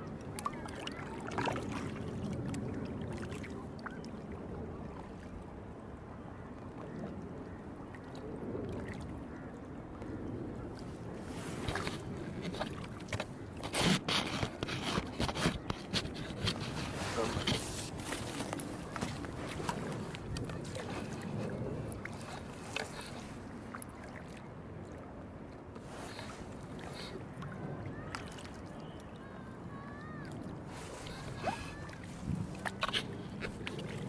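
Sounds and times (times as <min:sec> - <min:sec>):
water sloshing: 0:00.0 - 0:05.5, 0:10.2 - 0:25.0, 0:25.8 - 0:34.0
paddle strokes: 0:10.7 - 0:24.4, 0:25.7 - 0:34.0.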